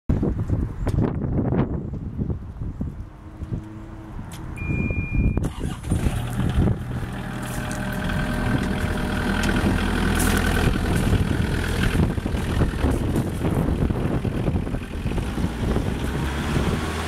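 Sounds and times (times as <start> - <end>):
diesel engine cranking and running: 3.3 - 17.0
steady electronic beep: 4.6 - 5.4.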